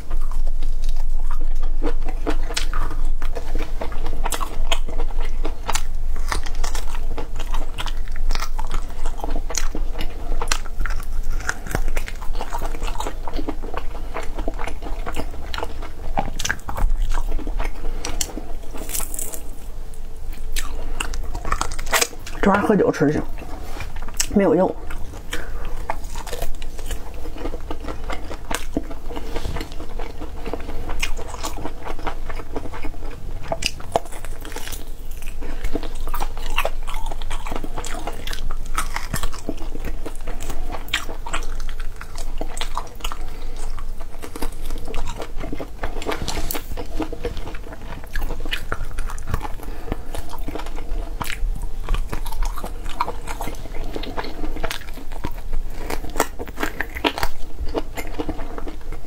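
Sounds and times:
person chewing meat: 0.0 - 59.0.

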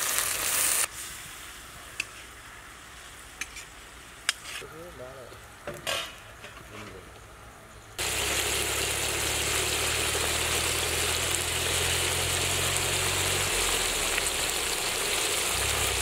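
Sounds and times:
food sizzling in oil: 0.0 - 4.3, 8.0 - 16.0.

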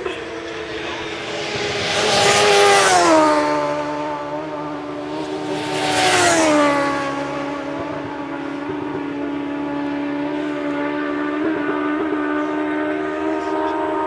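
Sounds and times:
racing motorcycle passing by: 0.0 - 14.0.

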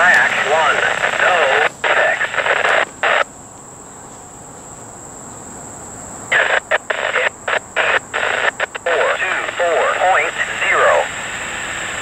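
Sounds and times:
synthesized voice over radio: 0.0 - 3.2, 6.3 - 11.4
faint radio hiss: 0.0 - 3.3, 6.2 - 12.0
high insect drone: 0.0 - 12.0.

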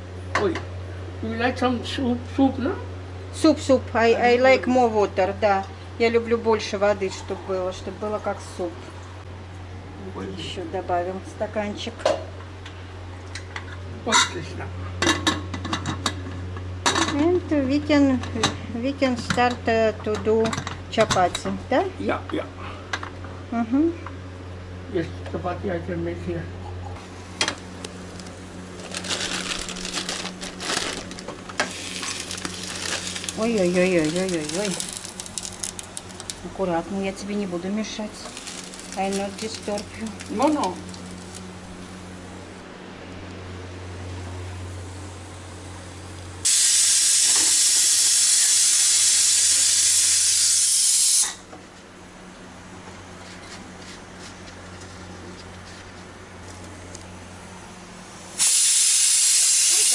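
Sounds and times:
steady low hum: 0.0 - 50.3, 51.2 - 58.5
pressure cooker steam hissing: 46.4 - 51.4, 58.4 - 59.9.

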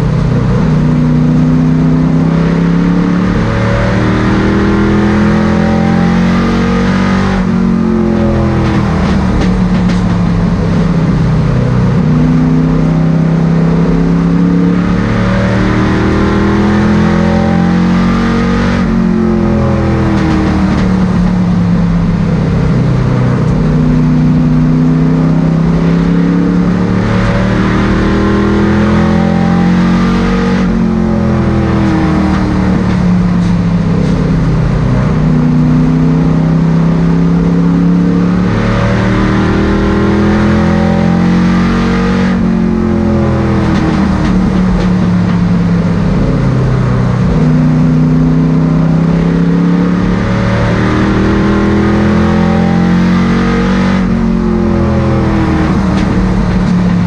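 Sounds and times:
race car engine revving: 0.0 - 57.0.

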